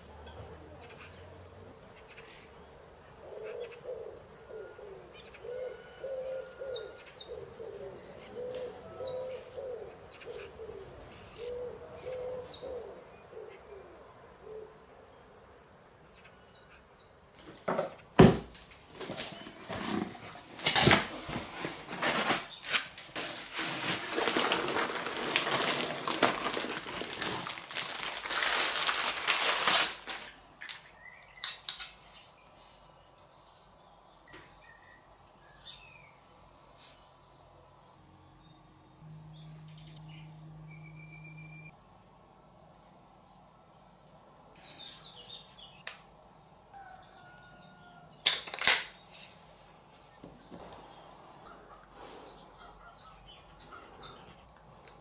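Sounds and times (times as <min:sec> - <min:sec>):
faint bird chirps and calls: 0:01.9 - 0:15.3, 0:49.0 - 0:54.9
cardboard box set down: 0:17.4 - 0:27.6
tape and cardboard rustling: 0:17.4 - 0:30.9.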